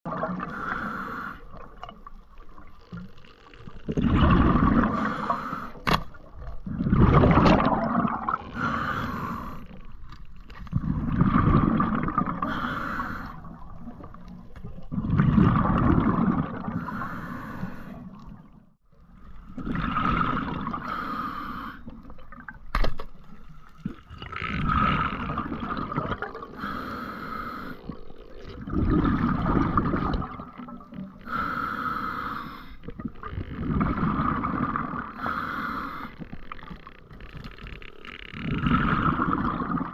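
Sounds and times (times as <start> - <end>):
diver exhaling bubbles underwater: 3.9 - 5.6, 6.4 - 9.7, 10.7 - 17.2, 19.6 - 21.0, 23.8 - 26.8, 27.9 - 31.6, 32.9 - 36.1, 38.4 - 39.9.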